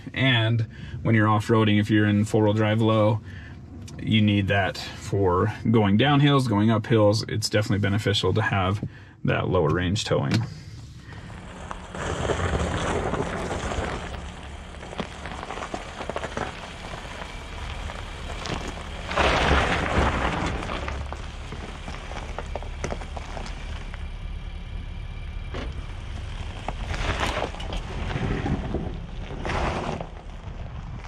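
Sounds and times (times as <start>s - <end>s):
vehicle engine rumble: 0.0s - 31.0s
rushes of noise: 10.6s - 31.0s
tyres crackling on dirt: 10.9s - 31.0s.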